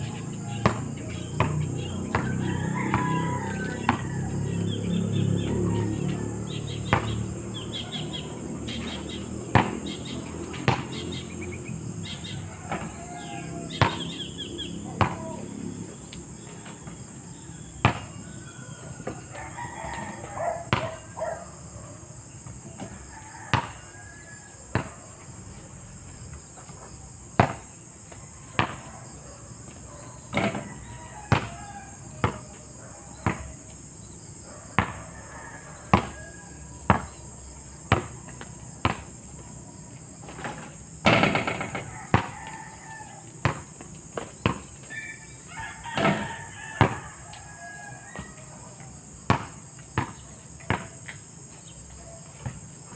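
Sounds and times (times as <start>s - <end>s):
basketball bouncing on asphalt: 0.0s - 4.8s, 5.5s - 15.5s, 16.3s - 21.5s, 22.3s - 25.3s, 26.4s - 52.9s
rooster crowing: 0.0s - 11.0s, 12.0s - 22.0s, 22.6s - 25.1s, 29.9s - 33.7s, 34.5s - 38.8s, 41.1s - 43.6s, 44.8s - 49.0s.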